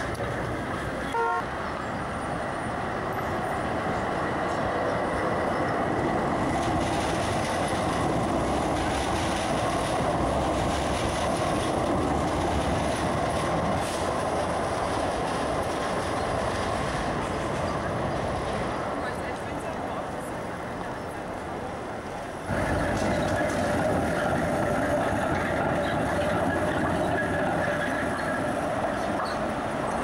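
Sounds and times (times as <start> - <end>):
trams rolling past: 0.0 - 30.0
tram horn toot: 1.1 - 1.6.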